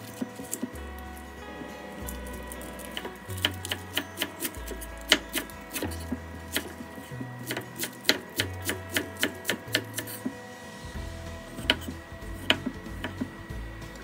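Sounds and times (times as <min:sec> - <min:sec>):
knife chopping on wooden board: 0:02.9 - 0:06.8, 0:07.4 - 0:10.3.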